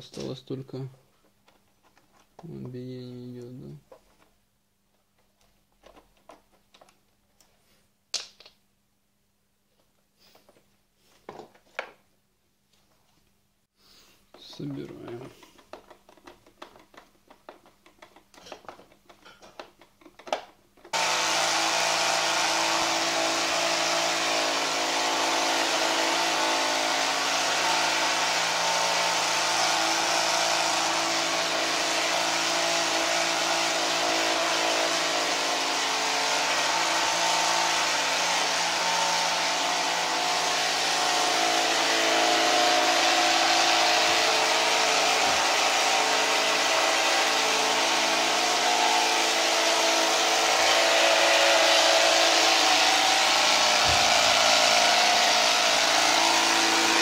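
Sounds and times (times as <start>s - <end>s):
plastic parts clicking: 5.1s - 7.5s, 14.3s - 20.9s
robot vacuum cleaner running: 21.0s - 57.0s.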